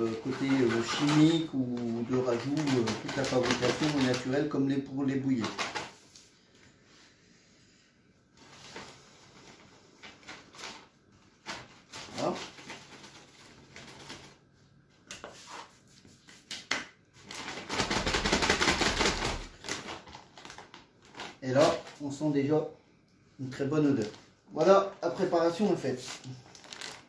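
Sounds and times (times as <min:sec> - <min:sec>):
plastic bag crinkling: 0:00.0 - 0:06.0, 0:08.4 - 0:14.5, 0:17.2 - 0:22.2, 0:23.4 - 0:27.0.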